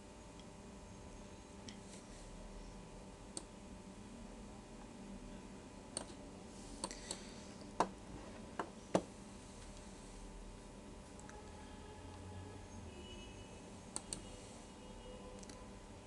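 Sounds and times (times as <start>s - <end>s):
faint steady hum: 0.0s - 16.0s
computer mouse button clicks: 14.0s - 14.3s.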